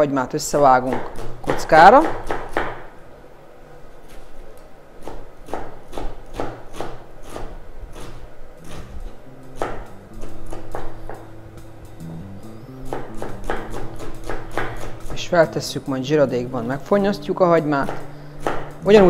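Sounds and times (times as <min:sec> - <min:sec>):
knife chopping on cutting board: 0:05.0 - 0:09.0, 0:12.9 - 0:14.9.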